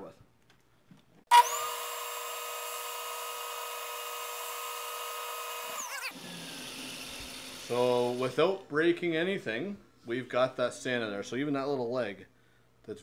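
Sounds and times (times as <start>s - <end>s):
drum sander whining: 1.3s - 8.4s.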